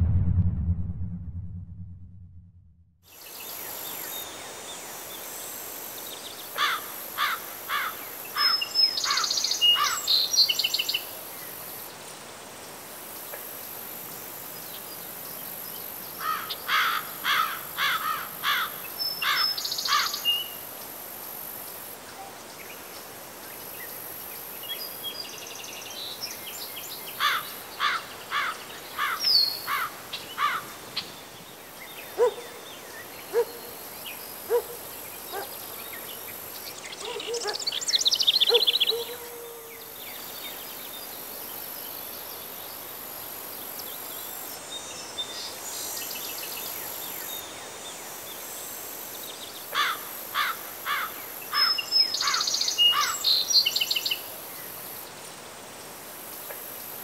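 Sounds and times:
high insect hum: 3.4s - 57.0s
songbird singing: 8.4s - 11.5s, 24.6s - 42.9s, 51.5s - 54.7s.

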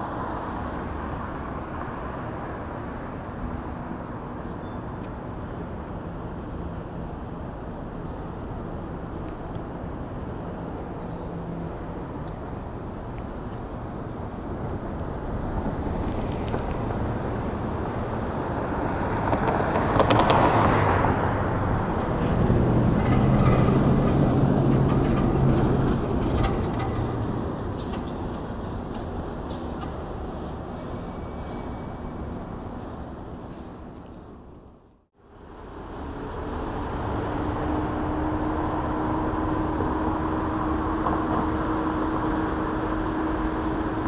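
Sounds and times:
road noise: 0.0s - 44.0s
heavy vehicle engine passing: 16.8s - 30.8s.

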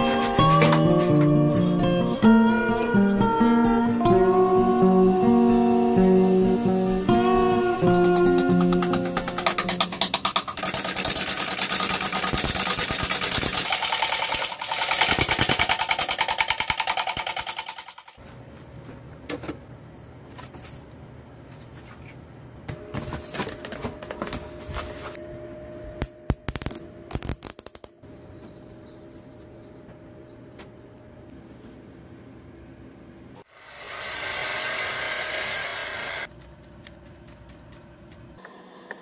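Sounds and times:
lathe gouge rattling on wood: 7.9s - 18.2s
low hum: 22.8s - 38.4s.

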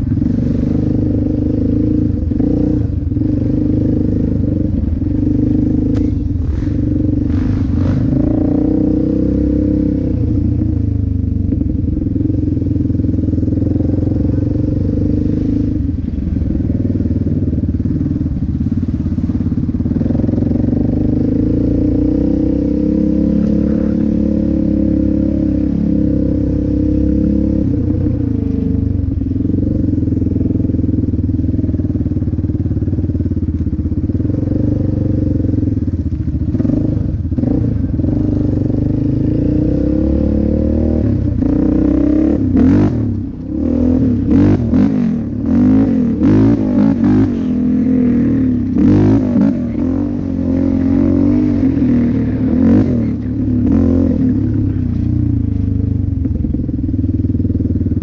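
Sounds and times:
quad engine revving: 0.0s - 11.0s, 11.6s - 15.9s, 19.9s - 30.8s, 36.4s - 56.1s.

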